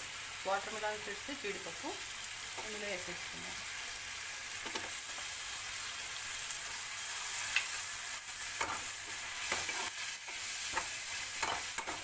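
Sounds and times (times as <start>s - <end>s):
vegetables sizzling in butter: 0.0s - 12.0s
metal spatula scraping pan: 8.6s - 12.0s.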